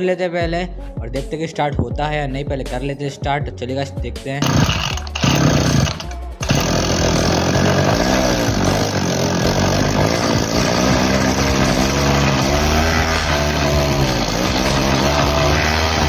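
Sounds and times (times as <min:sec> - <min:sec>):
small petrol engine running: 0:04.4 - 0:16.0.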